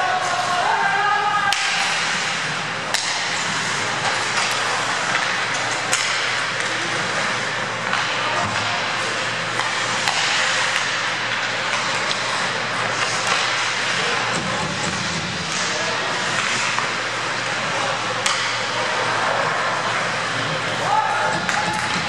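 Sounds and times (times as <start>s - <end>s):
hockey sticks clacking: 0.0s - 22.0s
skates scraping ice: 0.0s - 22.0s
sharp crack of stick or puck: 1.5s - 17.6s, 18.2s - 19.0s.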